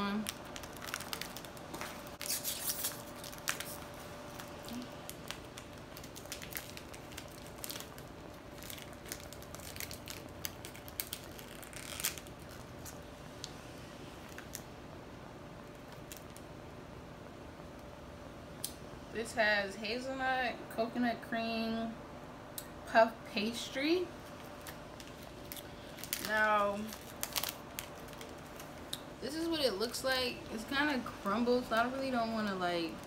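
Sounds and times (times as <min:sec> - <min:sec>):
plastic wrapper crinkling: 0:00.0 - 0:13.5, 0:14.2 - 0:14.7, 0:15.6 - 0:16.5, 0:24.2 - 0:33.0
faint steady hum: 0:00.0 - 0:33.0.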